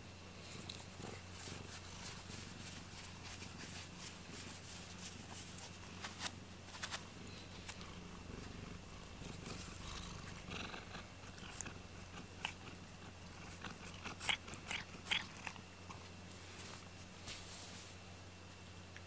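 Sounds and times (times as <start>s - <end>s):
cat purring: 7.1s - 16.1s.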